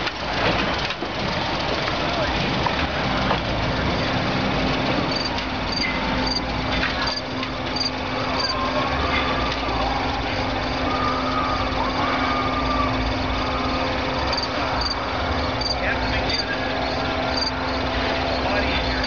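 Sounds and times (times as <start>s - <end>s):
electric streetcar running: 0.0s - 19.0s
faint wavering squeals: 5.1s - 19.0s.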